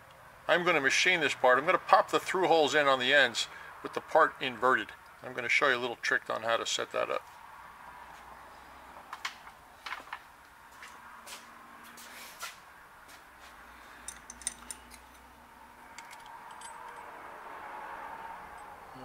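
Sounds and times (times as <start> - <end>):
light metallic clicks and clinks: 13.9 - 15.3, 15.9 - 17.2.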